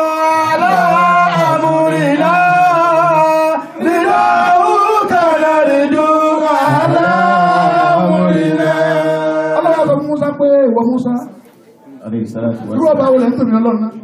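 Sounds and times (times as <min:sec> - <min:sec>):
men chanting through pa: 0:00.0 - 0:10.3.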